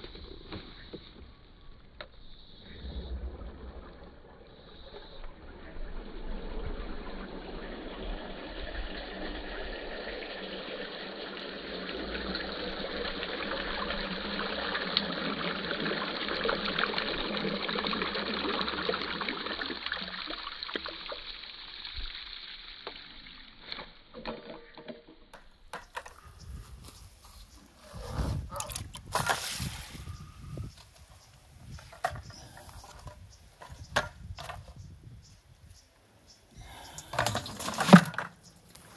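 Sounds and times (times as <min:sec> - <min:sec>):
water draining from bucket: 0:03.3 - 0:26.3, 0:36.6 - 0:38.3.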